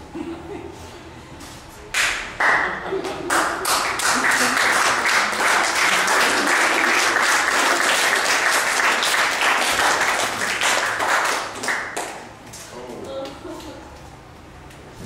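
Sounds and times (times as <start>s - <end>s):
audience applauding: 2.4s - 12.3s.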